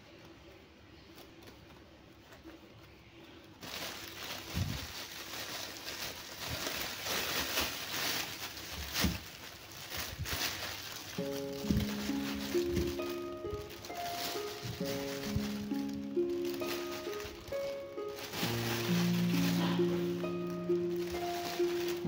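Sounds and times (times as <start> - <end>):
plastic bag crinkling: 1.0 - 22.0
potatoes knocking: 10.2 - 22.0
music: 11.1 - 22.0.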